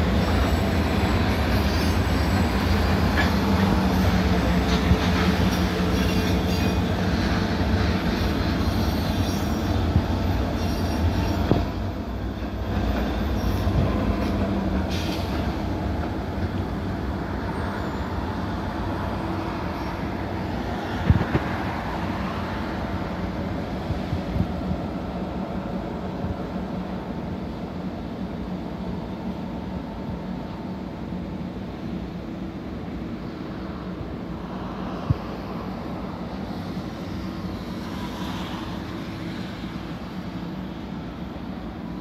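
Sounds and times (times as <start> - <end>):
rail clatter: 0.0 - 17.1
diesel locomotive running: 0.0 - 42.0
freight train rumbling on rails: 0.0 - 42.0.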